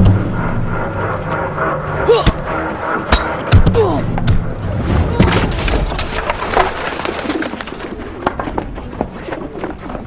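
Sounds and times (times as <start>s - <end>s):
swords clashing: 3.1s - 3.9s.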